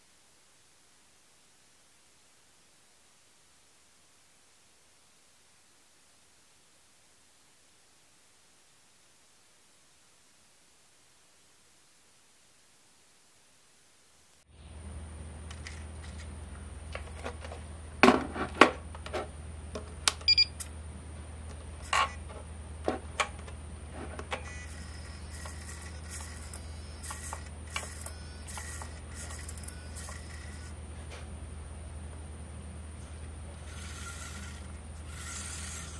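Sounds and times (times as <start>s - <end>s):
faint hum: 0.0s - 35.9s
short electronic beep: 20.3s - 20.5s
thin high whine: 23.9s - 35.9s
faint short buzzes: 24.0s - 31.3s.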